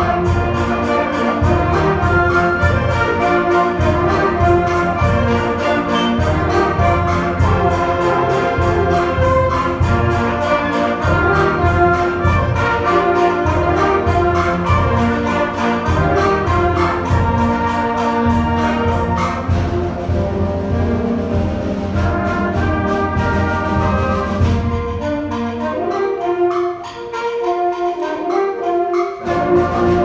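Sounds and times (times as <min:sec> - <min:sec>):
student band playing: 0:00.0 - 0:30.0.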